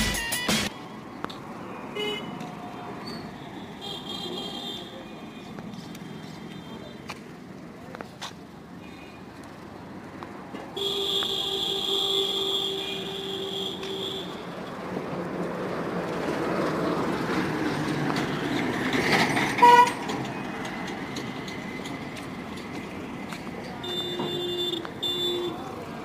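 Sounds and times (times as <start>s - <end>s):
horn sounding: 10.8s - 14.4s, 19.6s - 20.0s, 23.8s - 25.6s.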